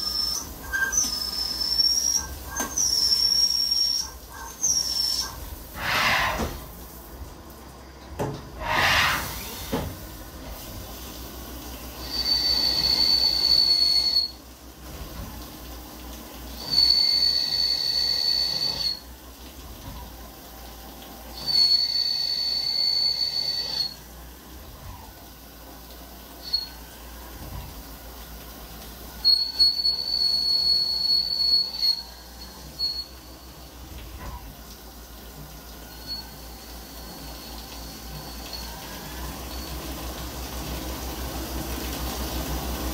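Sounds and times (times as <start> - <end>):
lathe cutting squeal: 0.0 - 6.5, 12.0 - 14.3, 16.6 - 19.0, 21.4 - 24.0, 29.2 - 33.4, 35.9 - 39.7
coolant hissing and splashing: 0.0 - 42.9
short rushing hisses: 5.8 - 6.7, 8.6 - 9.7.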